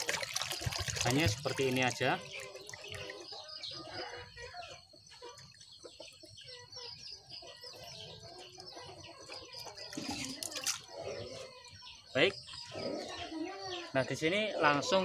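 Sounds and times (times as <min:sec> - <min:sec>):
liquid pouring from bottle: 0:00.0 - 0:03.3
water swished by hand in basin: 0:00.0 - 0:03.4
birds calling: 0:00.0 - 0:15.0.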